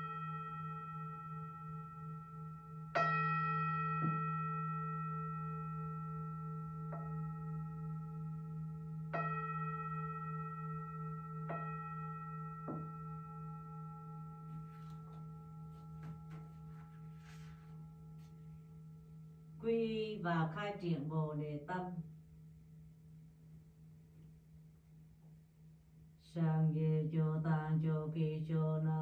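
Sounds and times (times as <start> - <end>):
singing bowl ringing: 0.0 - 20.6
faint rustling: 14.4 - 18.6.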